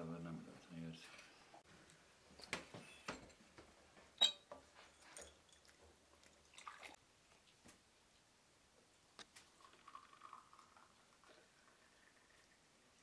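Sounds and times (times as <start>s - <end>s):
glassware and cutlery clinking: 4.2s - 5.8s
faint liquid sounds: 4.9s - 13.0s.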